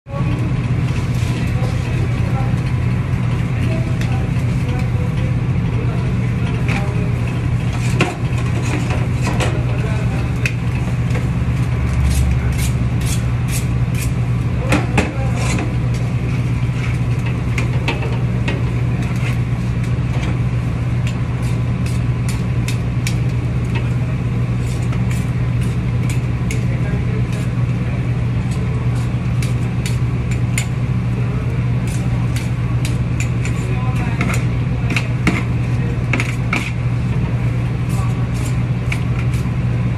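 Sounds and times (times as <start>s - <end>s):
low machine hum: 0.1s - 39.9s
utensils clicking on steel tray: 24.6s - 27.5s, 28.5s - 30.8s, 31.8s - 36.8s.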